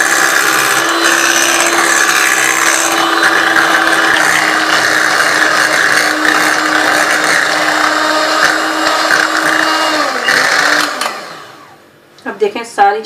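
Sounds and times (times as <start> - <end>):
electric mixer running: 0.0 - 11.8.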